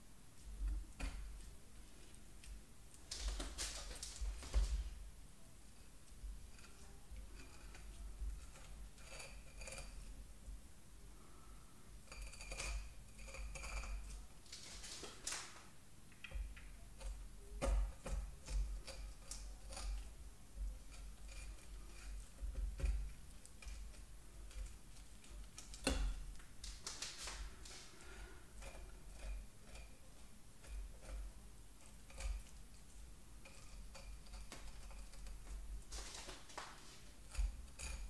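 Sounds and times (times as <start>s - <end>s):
knife scraping along fish bones: 12.1s - 15.4s, 17.0s - 20.2s, 33.4s - 38.0s.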